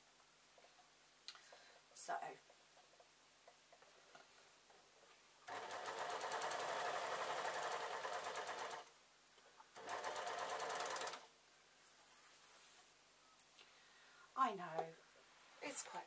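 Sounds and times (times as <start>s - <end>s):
overlocker sewing machine running: 5.5s - 8.9s, 9.8s - 11.3s.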